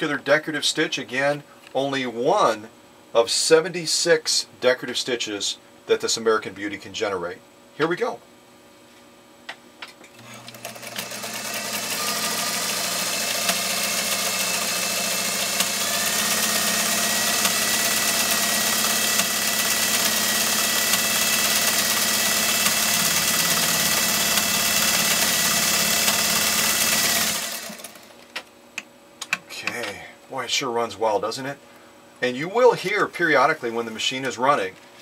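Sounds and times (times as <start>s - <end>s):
sewing machine running: 10.2s - 28.2s.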